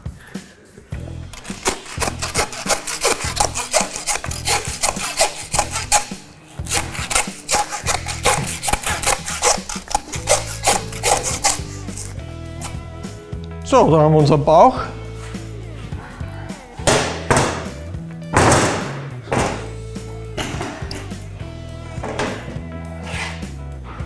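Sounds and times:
background music: 0:00.0 - 0:24.0
bone saw rasping through bones: 0:01.2 - 0:12.9.

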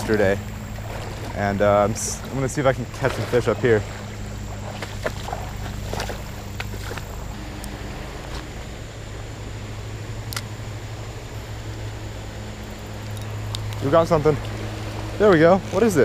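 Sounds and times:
creek water flowing: 0:00.0 - 0:16.0.

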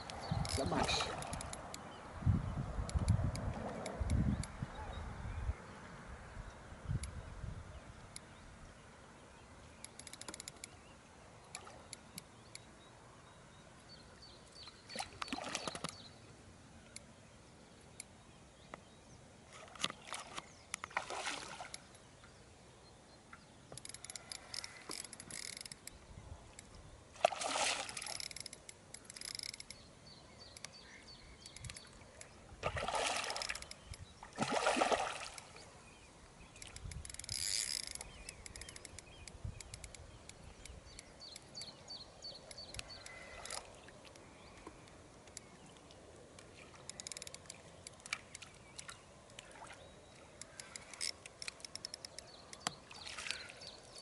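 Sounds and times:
fish splashing at water surface: 0:27.2 - 0:28.2, 0:32.6 - 0:33.6, 0:34.3 - 0:35.6.

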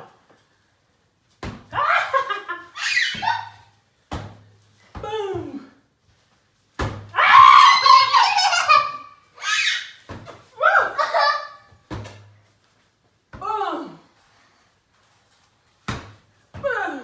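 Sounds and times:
woman laughing: 0:01.8 - 0:03.6
child laughing and squealing: 0:01.8 - 0:03.7, 0:07.3 - 0:10.0, 0:10.6 - 0:11.7.

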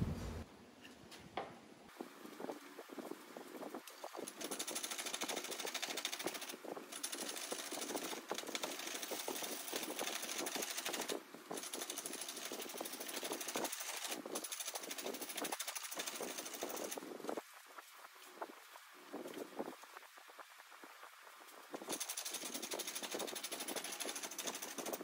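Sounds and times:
gouge scraping spinning wood: 0:04.1 - 0:17.0, 0:21.8 - 0:25.0.

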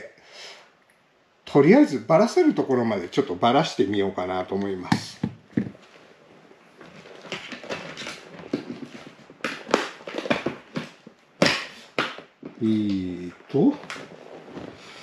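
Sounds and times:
rustling: 0:03.7 - 0:15.0
hard objects clacking and knocking: 0:06.9 - 0:12.6.

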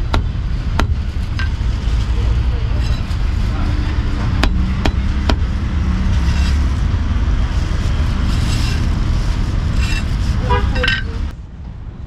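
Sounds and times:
low rumble of street traffic: 0:00.0 - 0:12.0
cleaver chopping on wooden block: 0:04.4 - 0:05.5.

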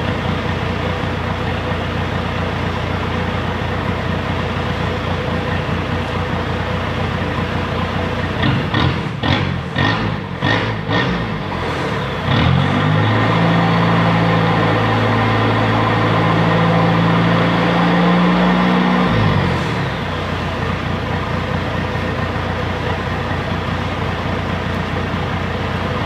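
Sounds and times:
diesel pickup engine revving: 0:00.0 - 0:26.0.

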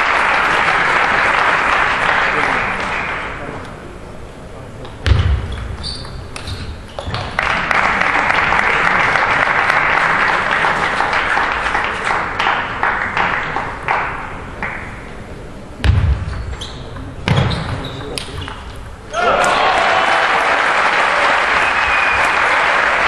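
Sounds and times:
audience applauding: 0:00.0 - 0:03.4, 0:07.3 - 0:14.8, 0:19.2 - 0:23.0.

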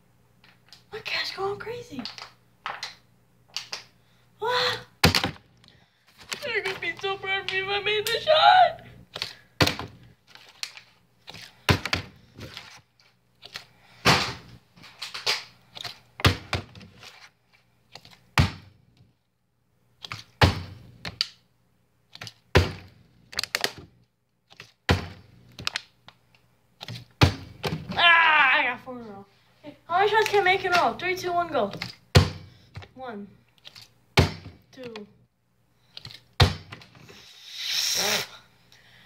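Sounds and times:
plastic bottle thunks and clacks: 0:05.0 - 0:05.5, 0:11.7 - 0:12.6, 0:26.8 - 0:28.0, 0:31.7 - 0:32.9, 0:34.2 - 0:34.6, 0:36.4 - 0:37.0.

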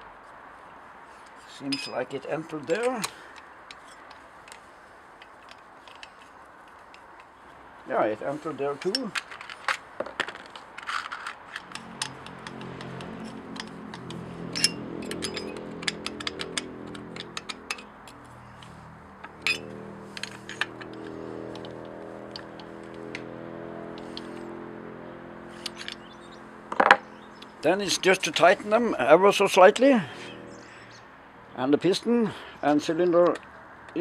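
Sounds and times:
small metal clicks and clinks: 0:02.8 - 0:07.4, 0:10.4 - 0:23.2, 0:23.9 - 0:24.4, 0:25.5 - 0:27.5.

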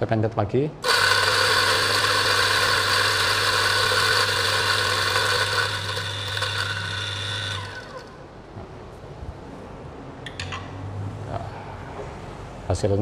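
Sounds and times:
coffee grinder grinding beans: 0:00.8 - 0:08.2
motor winding down: 0:00.8 - 0:08.2.

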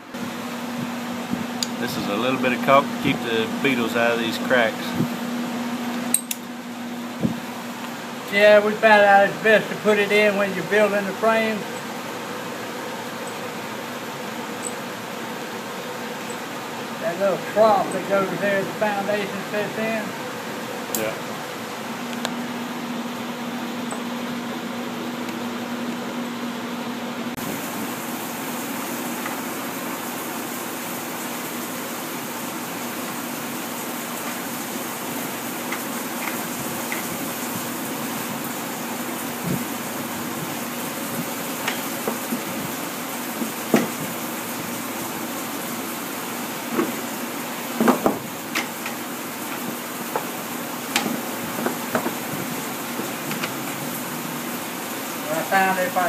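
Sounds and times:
wooden frame parts knocking: 0:47.8 - 0:48.7, 0:50.9 - 0:52.3.

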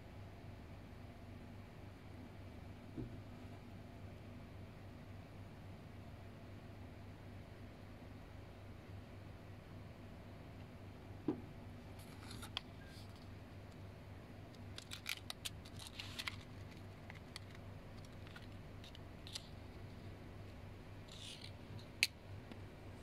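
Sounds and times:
plastic wrapping crinkling: 0:14.5 - 0:19.6.

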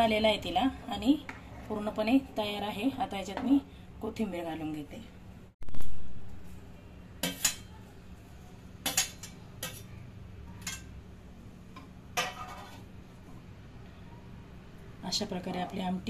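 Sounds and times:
spoon scraping pan: 0:12.2 - 0:12.9.

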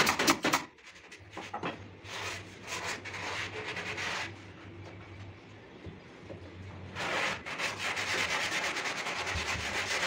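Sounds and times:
sandpaper rubbing on wood: 0:07.0 - 0:10.0.

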